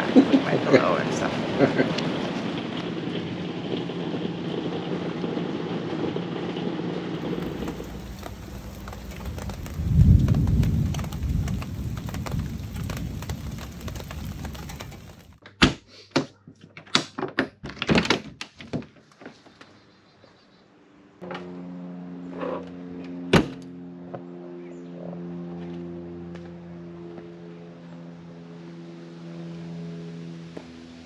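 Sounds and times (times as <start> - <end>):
heavy rain: 0.0 - 15.4
thunder rolling: 2.4 - 15.4.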